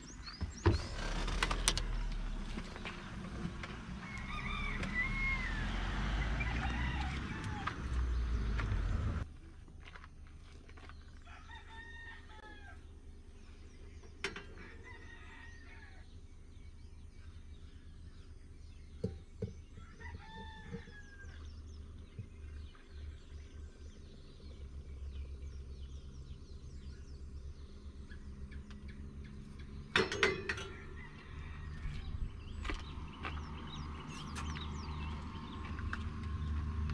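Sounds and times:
rooster crowing: 4.0 - 8.0, 11.3 - 12.8, 14.6 - 16.0, 19.8 - 21.4, 30.6 - 32.2.

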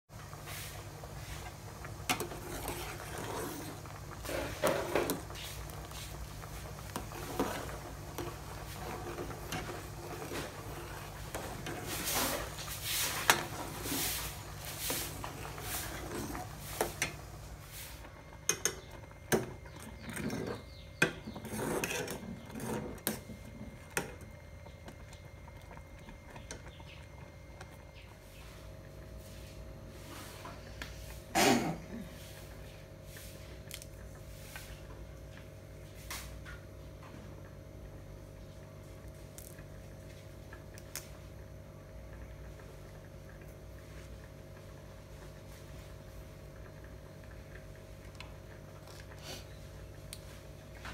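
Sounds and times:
metal spoon scraping pot: 18.5 - 24.2.

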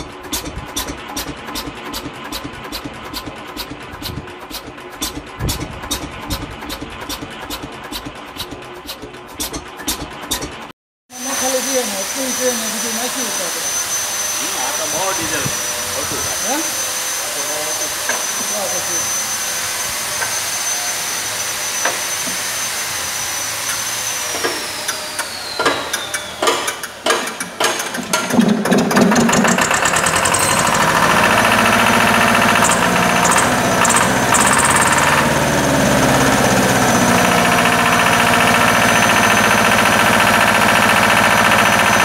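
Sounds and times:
diesel engine starting and running: 0.0 - 42.0
high whine: 11.1 - 27.4, 28.0 - 39.9.

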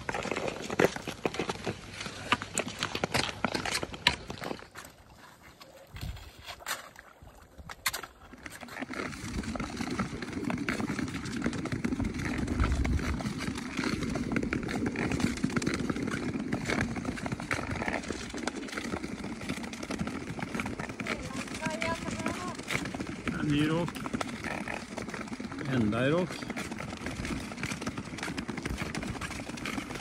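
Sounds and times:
pole tips clicking on ice: 0.0 - 23.0
ice skates scraping on ice: 0.0 - 30.0.

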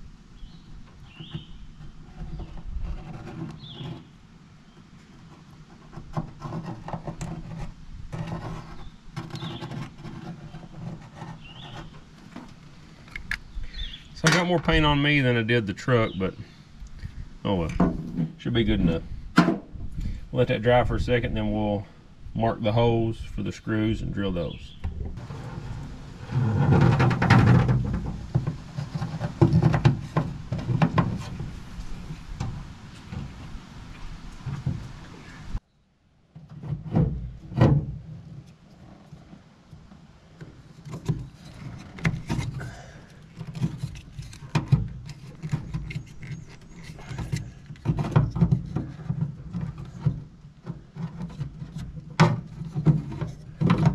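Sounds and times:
bird chirping: 0.4 - 2.6, 3.6 - 4.9, 8.5 - 9.8, 10.5 - 12.0, 13.2 - 14.5, 16.0 - 16.6, 24.3 - 25.0
sharp clicks and knocks: 26.3 - 35.0
plastic plug rustling: 40.4 - 53.9.

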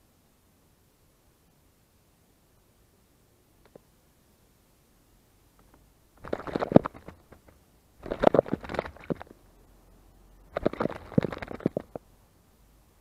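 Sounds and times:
bird splashing in water: 6.2 - 9.3, 10.6 - 12.0.

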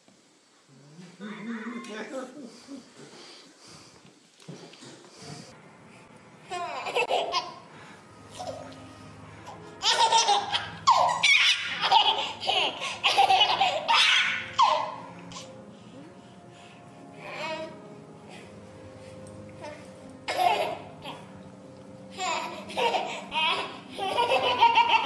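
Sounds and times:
baby laughing: 6.5 - 7.6, 9.8 - 15.5, 20.3 - 21.2, 22.2 - 25.0.

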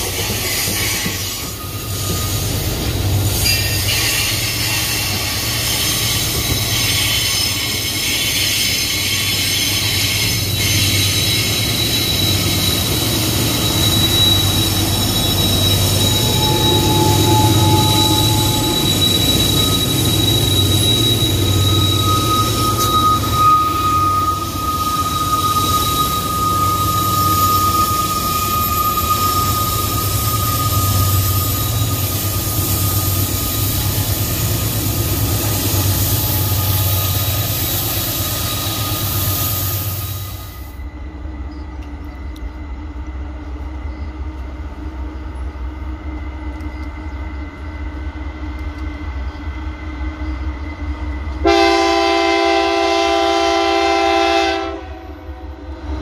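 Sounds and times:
high wheel squeal: 0.0 - 40.9
steel wheels on rail: 0.0 - 56.0
train horn chord: 51.4 - 55.3.

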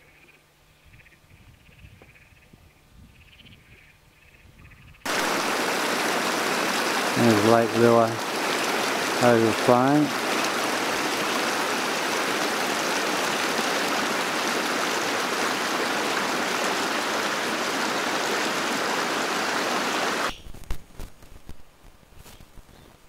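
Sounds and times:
water rushing over rocks: 5.1 - 20.3.

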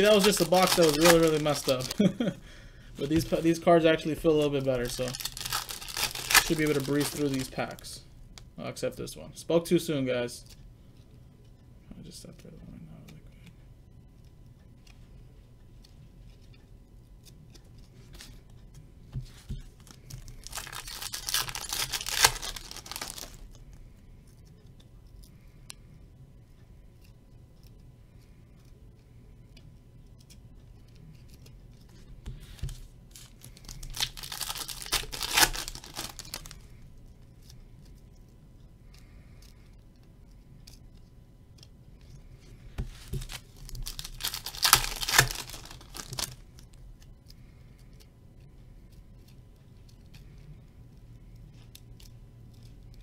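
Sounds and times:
wrappers tearing and crinkling: 0.0 - 2.3, 4.3 - 8.0, 19.8 - 23.6, 33.1 - 36.6, 43.0 - 46.7.

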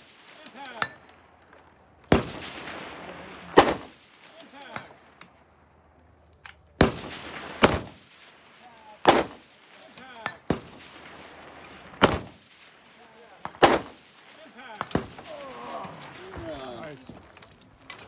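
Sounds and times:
rifle shots: 2.1 - 5.2, 6.8 - 16.9.

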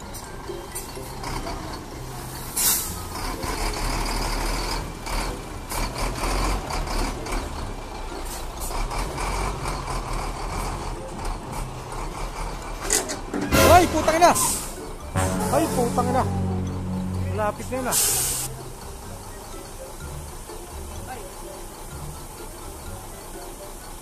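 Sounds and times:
truck diesel engine rumbling: 0.0 - 24.0
air brake hiss: 2.6 - 3.0, 18.0 - 18.5.

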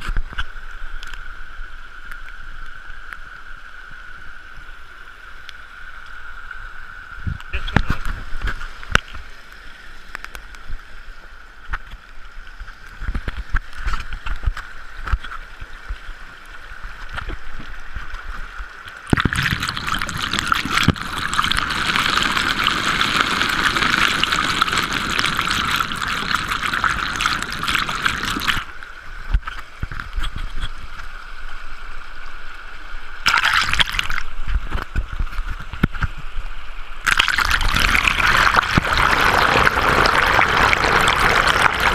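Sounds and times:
water rushing through sluice box: 11.6 - 31.0, 33.2 - 36.3, 37.0 - 41.9.

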